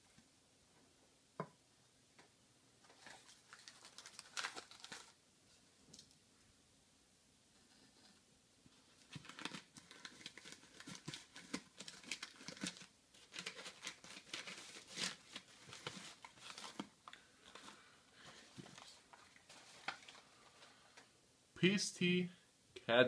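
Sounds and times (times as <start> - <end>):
packing material crinkling: 2.8 - 5.2, 8.9 - 20.8.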